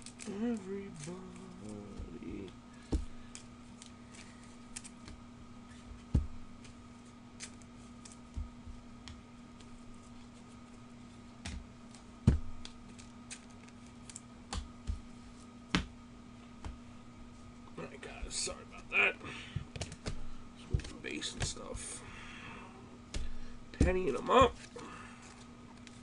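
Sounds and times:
faint steady hum: 0.0s - 26.0s
trading cards clicking and tapping: 19.5s - 21.8s, 23.1s - 24.7s.

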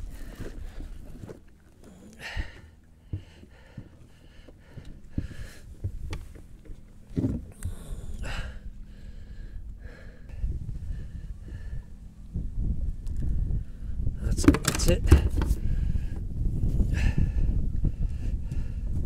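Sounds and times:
rustles and knocks of gear: 14.3s - 15.7s.

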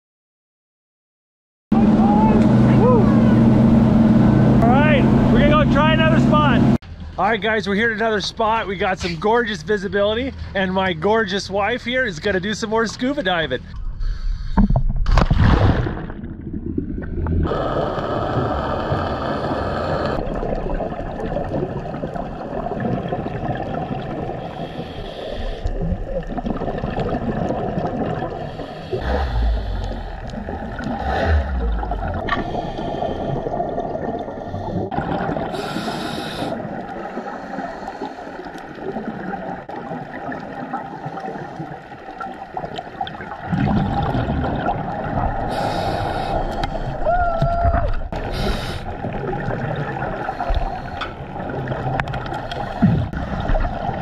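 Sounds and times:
scuba regulator breathing: 13.6s - 14.8s, 17.4s - 20.2s, 24.4s - 25.8s, 28.3s - 33.6s, 34.3s - 38.8s, 40.9s - 42.0s, 45.4s - 47.1s, 48.2s - 49.1s, 50.1s - 51.4s, 52.3s - 53.4s
underwater noise: 13.7s - 54.0s
exhaled bubbles: 14.5s - 54.0s.

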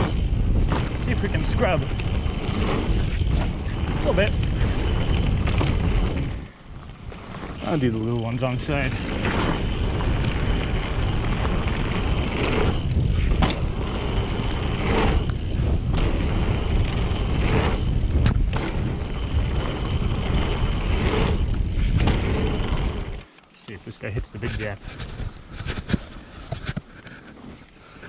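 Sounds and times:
bike clacks and thuds landing: 0.0s - 1.1s, 2.0s - 6.4s, 11.2s - 16.8s, 17.5s - 19.0s, 21.0s - 22.5s
wind on microphone: 0.0s - 7.6s, 8.8s - 23.2s
bike rolling over dirt: 0.0s - 23.4s, 24.1s - 28.0s.

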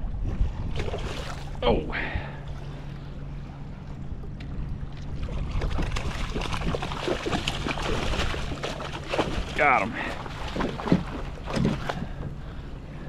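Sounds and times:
low wind rumble on microphone: 0.0s - 13.0s
fish thrashing and splashing: 5.1s - 12.2s.

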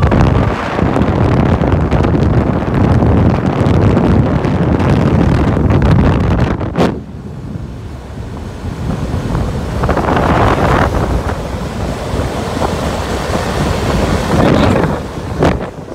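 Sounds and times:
road noise: 0.0s - 6.0s
wind buffeting microphone: 0.0s - 15.9s.

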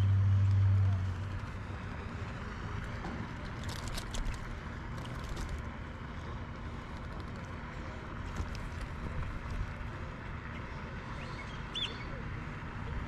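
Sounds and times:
clicks and rustles unhooking fish: 2.8s - 9.7s.

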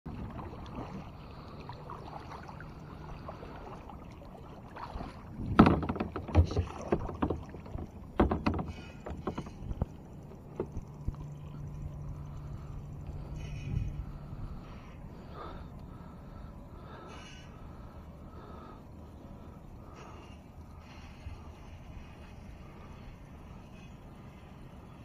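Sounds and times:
water and hull noise: 0.0s - 25.0s
low steady hum: 0.1s - 25.0s
sharp clunks on kayak hull: 5.4s - 10.9s.

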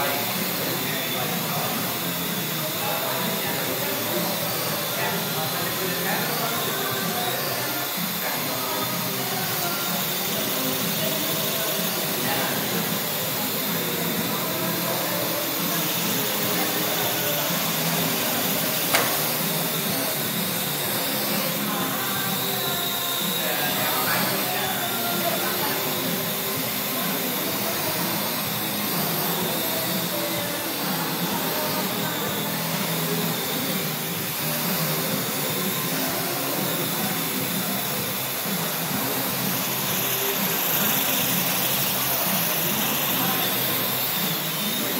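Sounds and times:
drone propellers whirring: 0.0s - 44.9s
sharp click: 18.9s - 19.2s.

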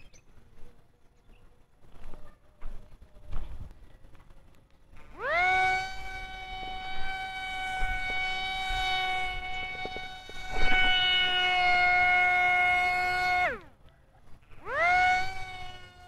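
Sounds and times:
toy propeller motor whine: 3.5s - 16.0s.

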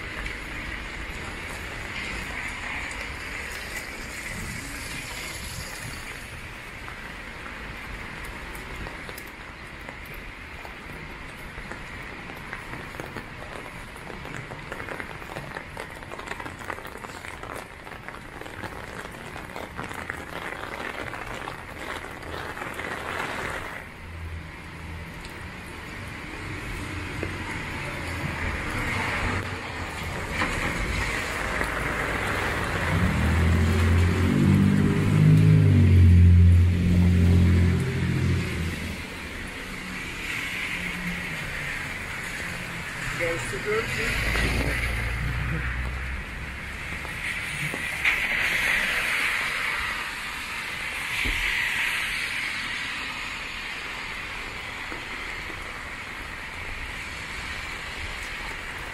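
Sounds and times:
heavy rain falling: 0.0s - 58.9s
traffic hissing on wet road: 0.0s - 58.9s
vehicle engine passing close: 32.2s - 39.0s.

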